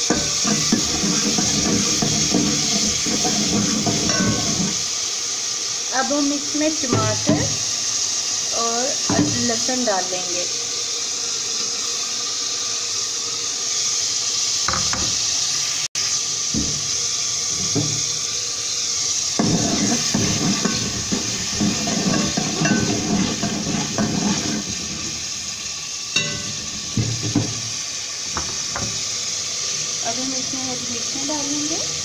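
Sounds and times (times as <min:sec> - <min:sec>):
food sizzling in oil: 0:00.0 - 0:32.0
metal spoon scraping a pot: 0:00.1 - 0:04.8, 0:19.4 - 0:25.1.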